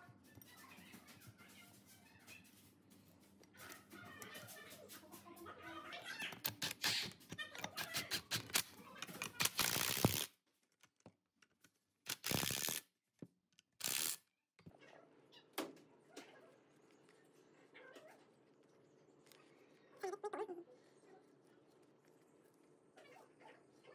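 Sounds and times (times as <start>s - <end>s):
cordless driver spinning: 9.4s - 10.3s, 13.8s - 14.2s.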